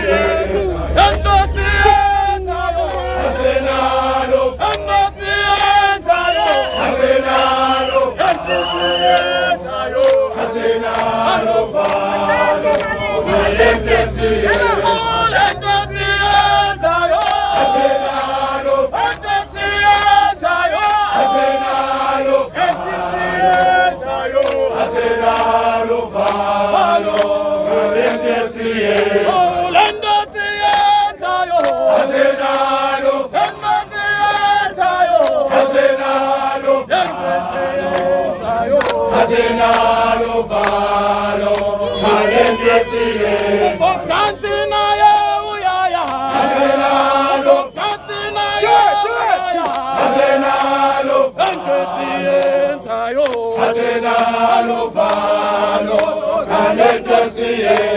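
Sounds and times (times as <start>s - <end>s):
crowd singing call-and-response: 0.0s - 57.9s
hand claps: 1.0s - 1.4s, 2.8s - 3.1s, 4.6s - 13.0s, 14.5s - 14.8s, 15.4s - 18.4s, 19.0s - 22.0s, 22.6s - 25.6s, 26.2s - 27.4s, 28.0s - 28.3s, 28.9s - 29.2s, 29.8s - 32.7s, 33.3s - 39.9s, 40.5s - 40.9s, 41.5s - 45.4s, 46.0s - 47.2s, 47.8s - 57.9s.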